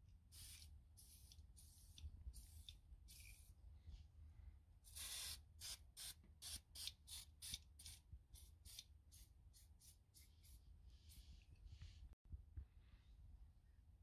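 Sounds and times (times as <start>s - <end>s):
aerosol can spraying: 0.3s - 3.5s, 4.9s - 10.6s.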